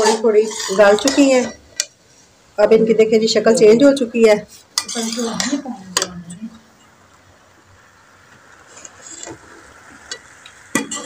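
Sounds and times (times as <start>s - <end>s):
metal spoon stirring in pot: 0.0s - 2.0s, 4.5s - 6.9s, 8.7s - 11.0s
faint steady hiss: 0.0s - 11.0s.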